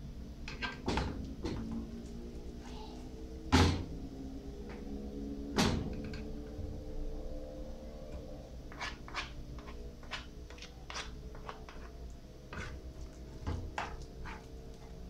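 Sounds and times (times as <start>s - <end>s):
metal spoon scraping a pan: 8.7s - 12.8s, 13.5s - 14.9s.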